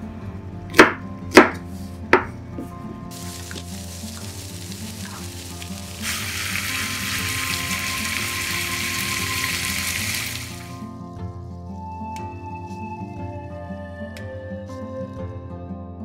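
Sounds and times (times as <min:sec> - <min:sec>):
background music: 0:00.0 - 0:16.0
food sizzling in frying pan: 0:03.1 - 0:10.9.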